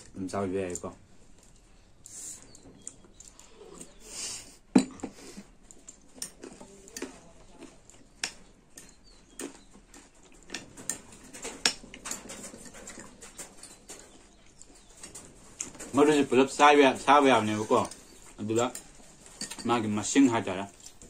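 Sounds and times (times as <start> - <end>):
chewing and mouth smacking: 1.3 - 4.0, 5.2 - 11.8.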